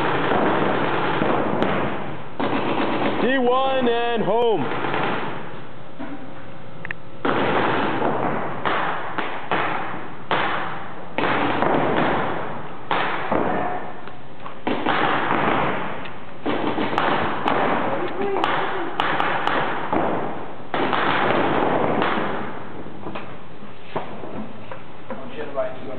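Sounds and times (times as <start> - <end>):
paintball markers firing: 14.4 - 22.5.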